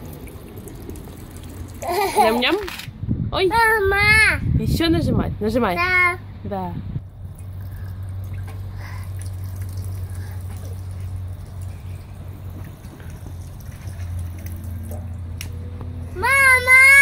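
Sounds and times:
drinking fountain water splashing: 0:00.0 - 0:02.6, 0:07.0 - 0:17.0
steady low hum: 0:04.4 - 0:16.2.

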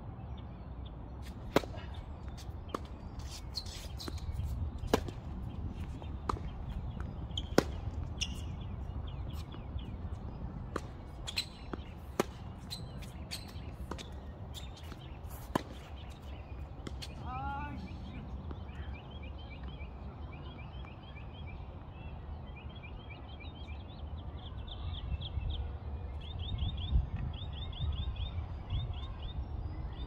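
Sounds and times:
tennis balls struck by rackets: 0:01.2 - 0:17.3
tennis balls bouncing on court: 0:01.2 - 0:18.8.

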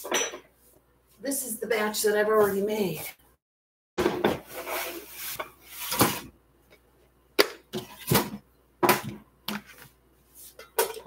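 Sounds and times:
dishes and cookware clattering: 0:00.0 - 0:00.5, 0:10.5 - 0:11.0.

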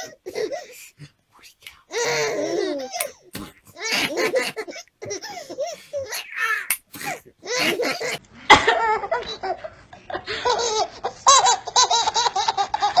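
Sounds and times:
babies giggling: 0:01.9 - 0:09.7.

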